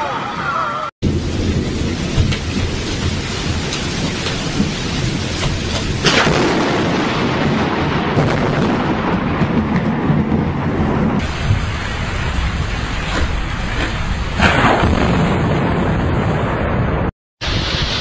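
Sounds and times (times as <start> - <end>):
steady rain: 0.5 - 18.0
sharp thunderclap: 1.0 - 18.0
thunder rumble: 1.0 - 18.0.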